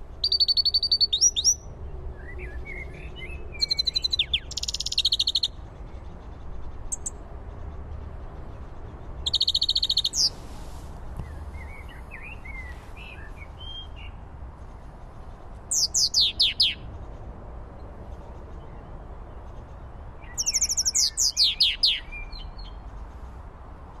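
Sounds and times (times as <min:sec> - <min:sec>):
goldfinch twittering song: 0:00.2 - 0:05.5, 0:09.2 - 0:10.4, 0:15.7 - 0:16.8, 0:20.2 - 0:22.8.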